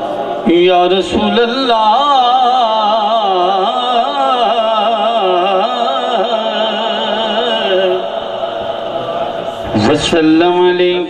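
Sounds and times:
man singing into microphone: 0.4s - 8.4s.

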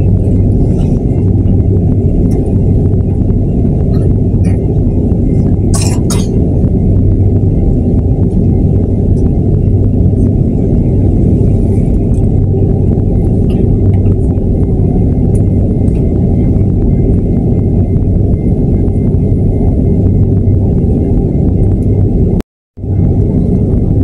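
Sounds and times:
cabin hum: 0.0s - 24.0s
jet engines rumbling: 0.0s - 24.0s.

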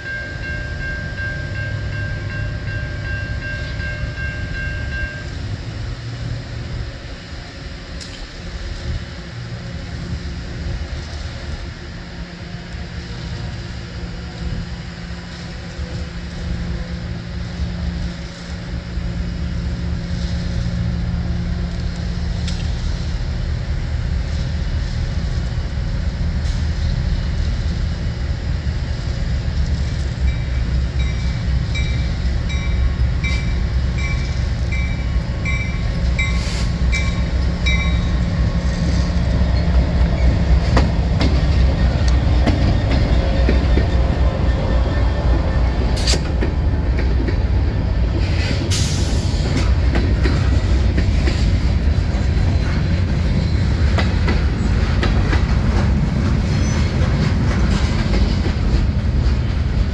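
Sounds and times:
crossing warning bell dinging: 0.0s - 5.7s, 30.2s - 46.0s
diesel locomotive engine rumble: 0.0s - 59.9s.

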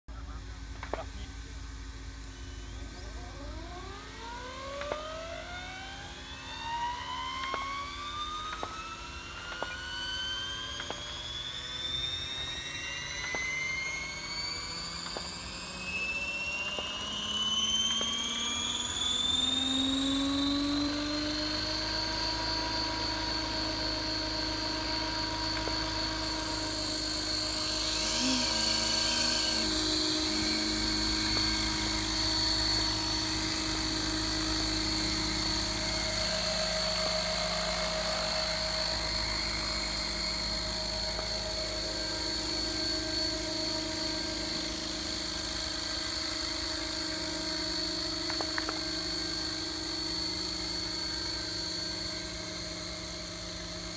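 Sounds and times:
model helicopter whine: 0.0s - 53.9s
helicopter rotor noise: 0.1s - 53.9s.

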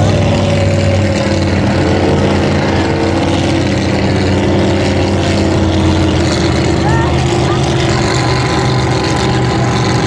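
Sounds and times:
boat engine droning: 0.0s - 10.0s
hull rushing through water: 0.0s - 10.0s.

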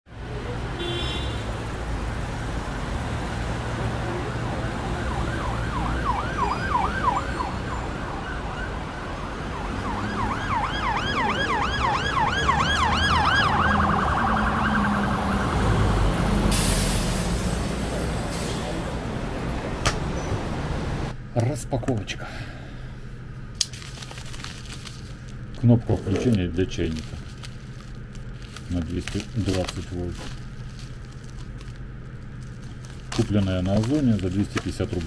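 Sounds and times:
low traffic rumble: 0.1s - 35.0s
siren yelping: 4.7s - 15.9s.

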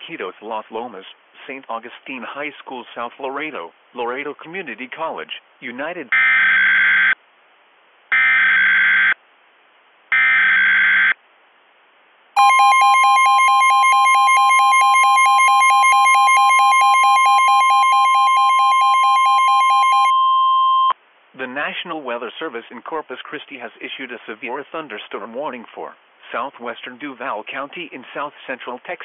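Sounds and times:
steady warning alarm tone: 6.1s - 7.2s, 8.1s - 9.2s, 10.1s - 11.2s, 12.4s - 20.9s.

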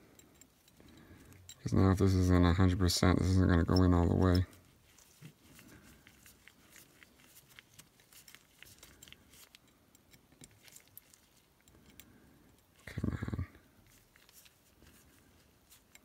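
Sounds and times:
small clicks and rustles of hands: 4.3s - 16.0s.

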